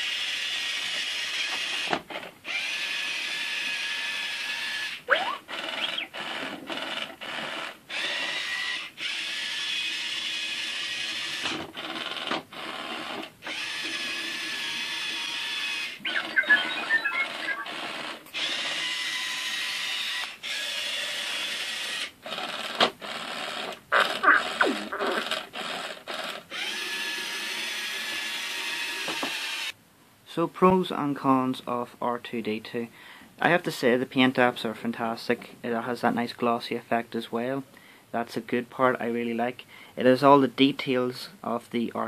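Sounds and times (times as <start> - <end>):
toy motor and gears whirring: 0.0 - 16.0, 18.3 - 29.8
electronic beeps and whistles: 5.1 - 6.1, 16.0 - 18.2.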